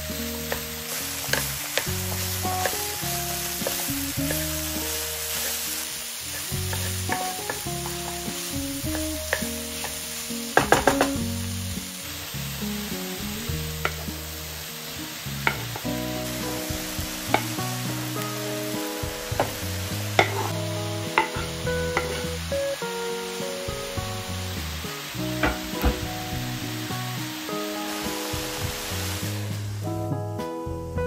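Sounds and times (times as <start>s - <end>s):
food sizzling in a frying pan: 0.0s - 29.9s
background music: 0.0s - 31.0s
loud knocks: 25.4s - 26.5s.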